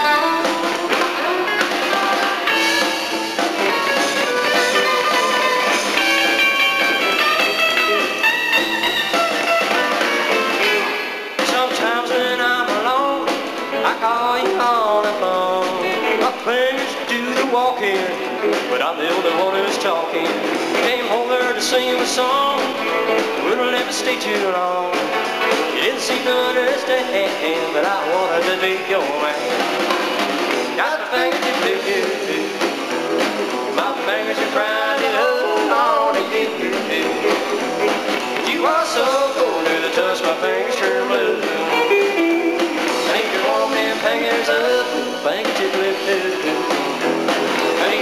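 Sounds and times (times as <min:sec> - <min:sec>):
electric guitar sliding notes: 0:00.0 - 0:11.3, 0:41.0 - 0:45.3
country band playing live: 0:00.0 - 0:48.0.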